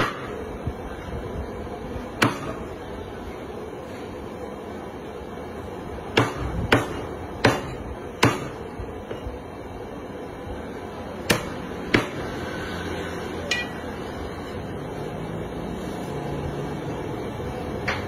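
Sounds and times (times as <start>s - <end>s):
cleaver chopping meat on wood: 2.2s - 2.6s, 6.1s - 8.6s, 11.3s - 12.3s.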